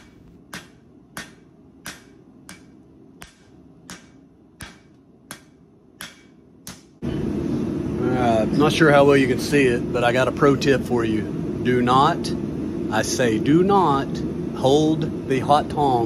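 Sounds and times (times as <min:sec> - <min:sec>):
hammer striking metal on anvil: 0:00.0 - 0:07.0.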